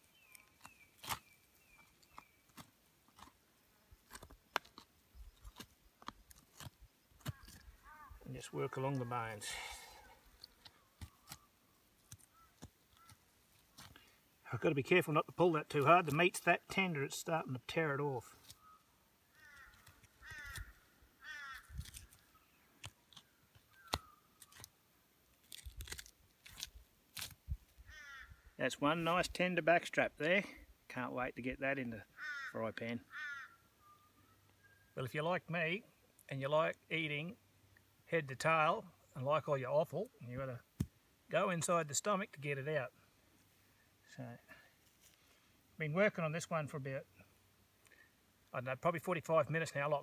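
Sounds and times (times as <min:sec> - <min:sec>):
faint high chirp: 0:33.8 - 0:35.0.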